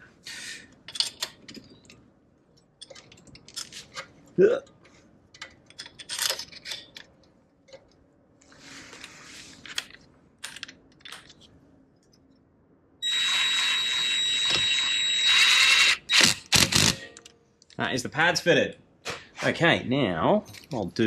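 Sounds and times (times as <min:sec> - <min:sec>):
impact wrench whining: 0:13.0 - 0:17.2.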